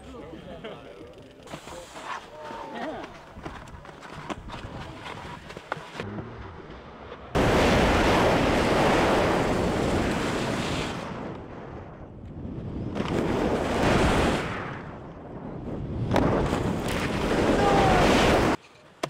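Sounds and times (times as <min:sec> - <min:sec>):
skis hissing over snow: 0:01.5 - 0:03.0.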